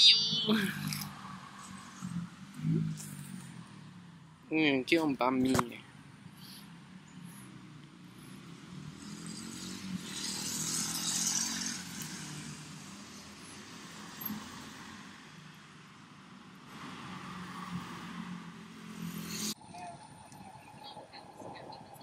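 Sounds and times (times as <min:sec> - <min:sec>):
low hum of traffic: 0:00.0 - 0:22.0
vehicle passing: 0:05.8 - 0:15.5, 0:16.7 - 0:19.7.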